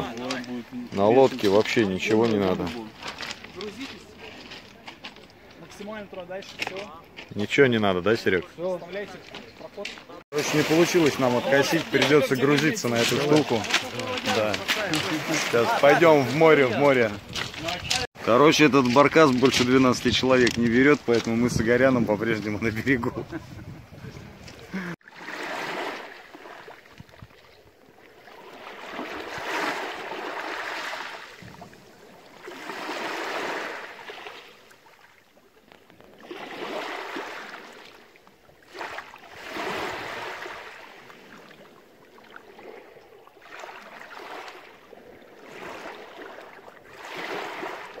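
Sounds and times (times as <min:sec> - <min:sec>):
waves washing over pebbles: 0:10.3 - 0:22.6, 0:25.0 - 0:27.3, 0:28.0 - 0:48.0.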